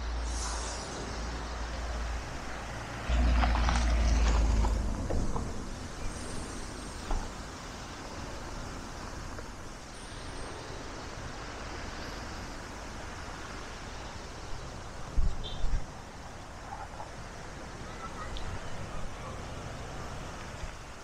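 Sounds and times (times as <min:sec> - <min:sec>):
passing vehicle rumble: 0:00.0 - 0:07.9
outdoor background noise: 0:00.0 - 0:21.0.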